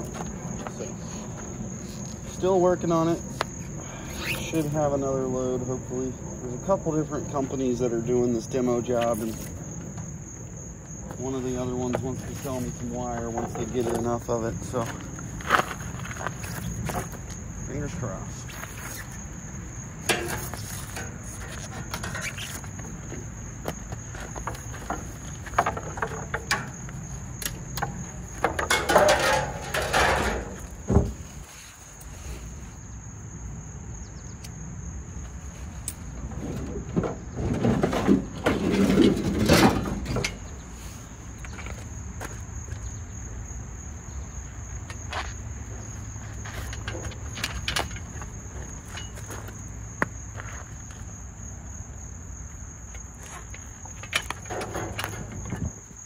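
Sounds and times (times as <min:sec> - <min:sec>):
crickets chirring: 0:00.0 - 0:56.0
copper pipe scraping and clattering: 0:20.0 - 0:23.2, 0:24.0 - 0:31.4, 0:36.2 - 0:40.5, 0:46.4 - 0:49.4, 0:53.2 - 0:55.8.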